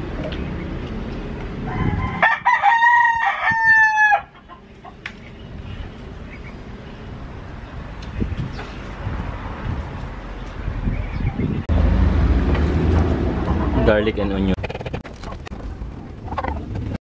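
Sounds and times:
rooster crowing: 1.6 - 4.4.

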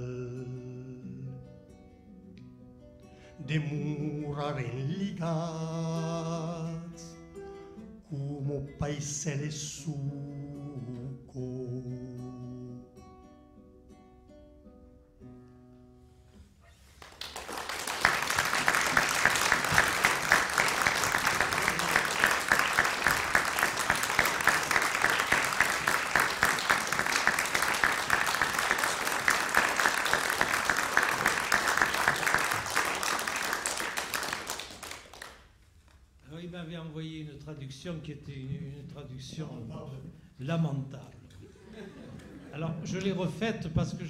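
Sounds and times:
acoustic guitar: 0.0 - 17.4, 35.4 - 44.0
audience applause: 17.0 - 35.4.

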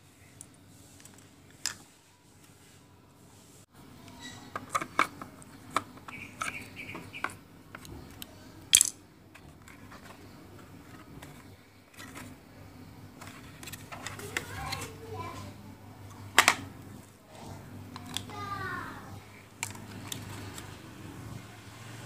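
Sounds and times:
quiet handling: 9.2 - 21.5.

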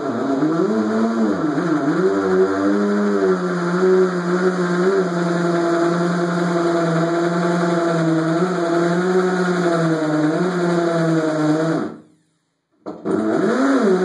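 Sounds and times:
hammer drill boring into tile: 0.0 - 12.0, 12.9 - 14.0.

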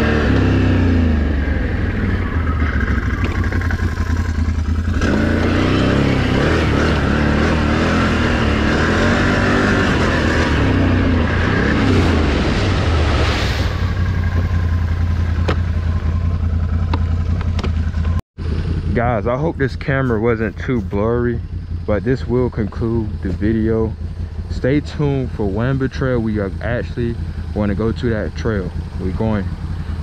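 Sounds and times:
atv engine revving: 0.0 - 30.0
low rumble: 0.0 - 30.0
sharp knocks: 15.4 - 15.8.

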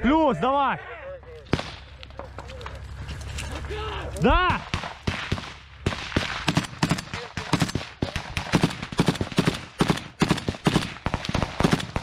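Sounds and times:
rifle shots: 1.5 - 2.0, 4.4 - 12.0.

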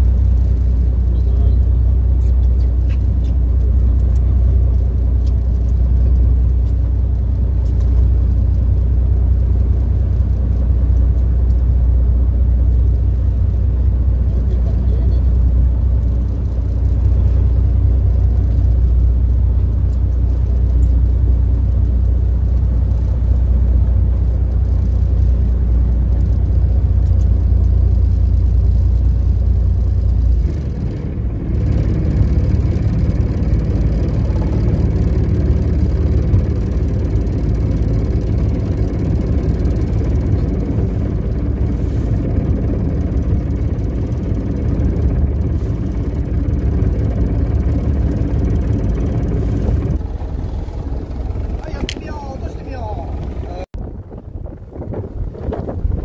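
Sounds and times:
boat engine deep hum: 0.0 - 56.0
rough noisy engine: 0.0 - 56.0.

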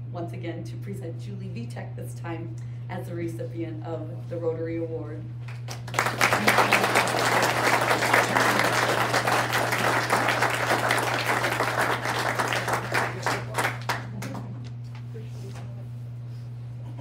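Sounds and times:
audience applauding: 5.6 - 14.6.

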